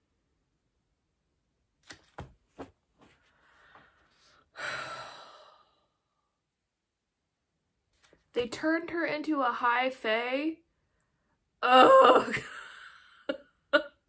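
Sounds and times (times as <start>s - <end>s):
faint breath: 3.2s - 6.3s
woman sighing: 4.5s - 6.0s.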